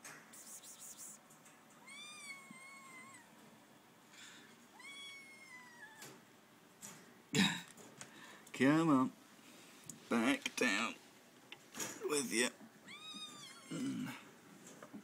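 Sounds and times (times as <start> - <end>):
kitten meowing: 1.8 - 3.3, 4.7 - 6.1, 12.9 - 13.8.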